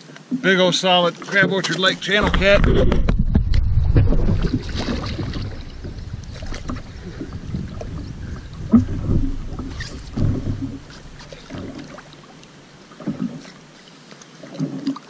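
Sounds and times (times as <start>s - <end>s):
water splashing and lapping: 0.0s - 15.0s
wind rumbling on microphone: 1.9s - 13.4s.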